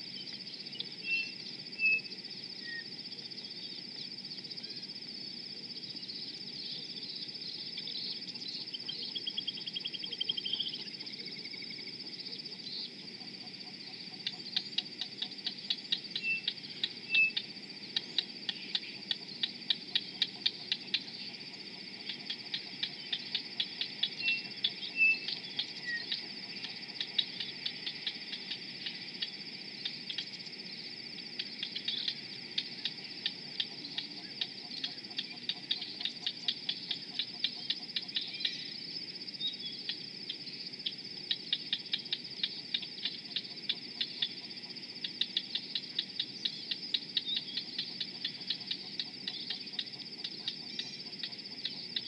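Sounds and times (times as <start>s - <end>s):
faint bird chirps: 0.0s - 4.9s, 5.7s - 52.0s
insects droning: 0.0s - 52.0s
insect ticking: 7.2s - 52.0s.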